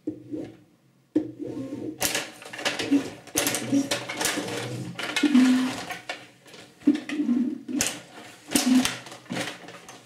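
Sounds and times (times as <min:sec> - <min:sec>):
plastic players clacking on puck: 0:02.0 - 0:10.0.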